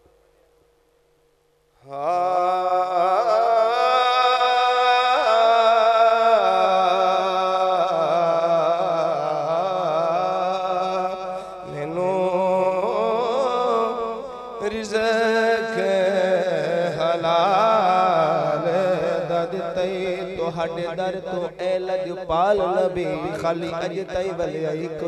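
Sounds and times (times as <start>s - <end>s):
man singing into microphone: 1.8s - 25.0s.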